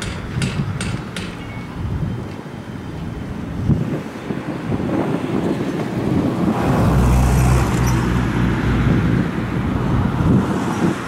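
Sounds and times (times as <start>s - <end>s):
wind buffeting microphone: 1.8s - 11.0s
motor vehicle passing by: 5.8s - 11.0s.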